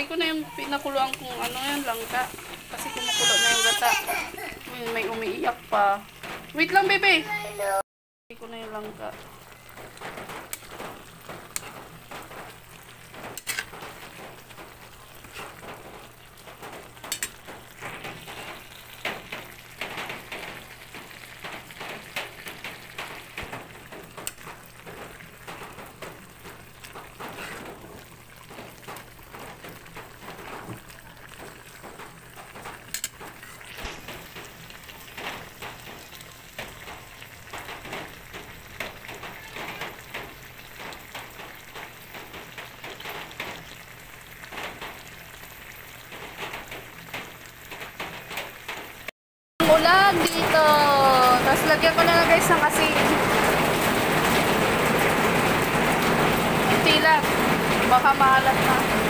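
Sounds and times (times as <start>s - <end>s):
liquid simmering and bubbling: 8.5s - 49.1s.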